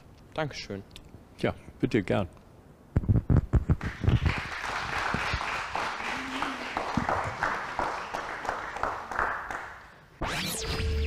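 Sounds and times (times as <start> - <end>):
group clapping: 3.7 - 10.0.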